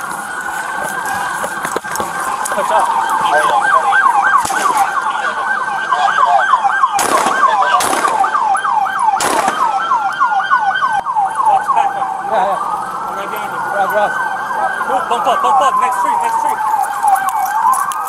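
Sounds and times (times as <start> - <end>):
police siren yelp and wail: 0.0 - 18.0
gunshots: 4.4 - 5.0, 6.9 - 8.5, 9.2 - 9.9.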